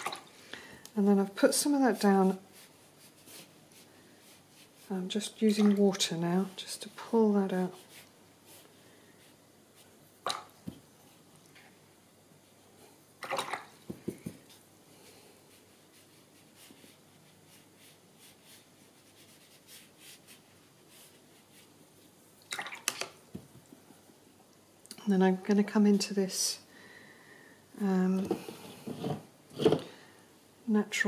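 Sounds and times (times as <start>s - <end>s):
small water splashes: 0.0s - 0.3s, 5.5s - 6.0s, 10.2s - 10.6s, 13.2s - 13.8s, 22.4s - 23.2s.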